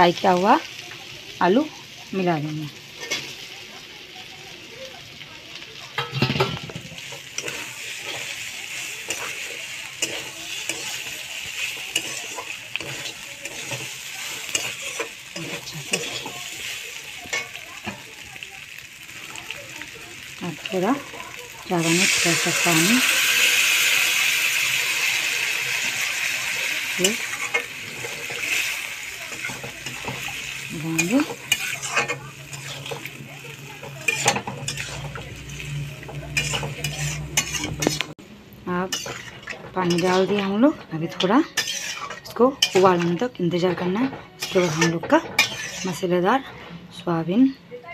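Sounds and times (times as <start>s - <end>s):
food sizzling in oil: 0.0s - 46.4s
metal spatula scraping pan: 6.0s - 18.2s, 20.4s - 38.2s, 38.9s - 46.8s.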